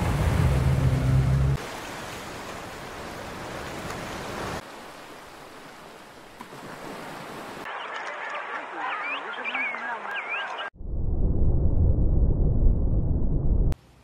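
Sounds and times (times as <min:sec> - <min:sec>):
sea waves: 0:00.0 - 0:10.6
wind: 0:00.0 - 0:14.0.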